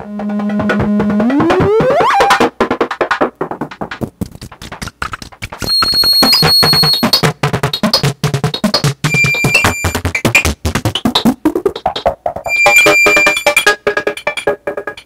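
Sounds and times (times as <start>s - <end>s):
rapid irregular clicking pulses: 0.0s - 15.0s
thin high whistling tones: 9.1s - 10.0s, 12.5s - 13.6s.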